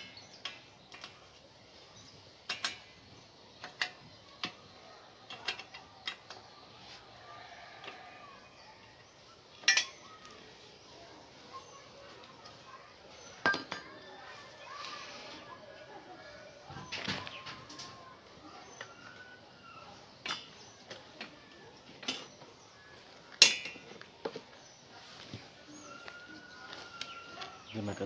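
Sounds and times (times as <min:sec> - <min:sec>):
metal clank: 0:09.6 - 0:10.0, 0:23.4 - 0:23.9.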